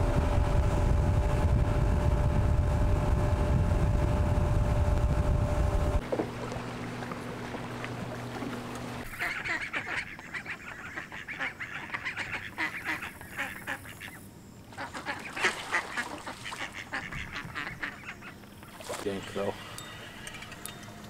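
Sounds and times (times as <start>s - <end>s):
boat motor humming: 0.0s - 21.0s
waterfowl calling: 6.3s - 20.5s.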